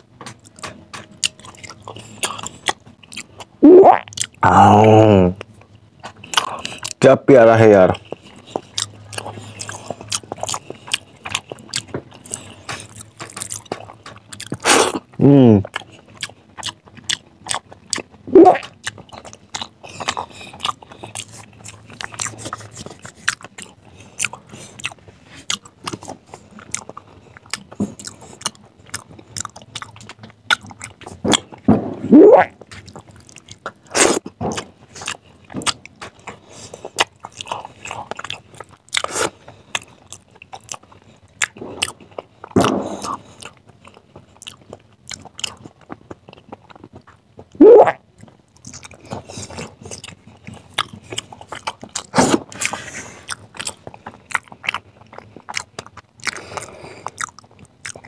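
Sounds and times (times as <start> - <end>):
wet chewing and lip-smacking: 0.2 - 7.1, 7.9 - 58.0
drawn-out mouth sounds: 18.2 - 29.9, 32.1 - 34.2, 47.5 - 48.1.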